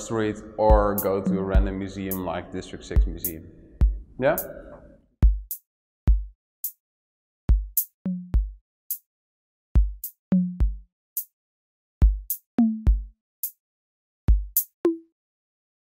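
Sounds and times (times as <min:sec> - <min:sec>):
drum machine beat: 0:00.0 - 0:06.8, 0:07.5 - 0:09.0, 0:09.8 - 0:11.3, 0:12.0 - 0:13.6, 0:14.3 - 0:15.0.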